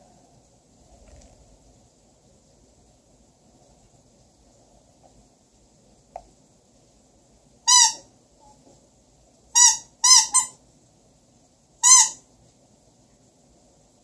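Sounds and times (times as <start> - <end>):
squeeze toy squeaks: 7.7 - 8.0, 9.6 - 10.6, 11.8 - 12.2.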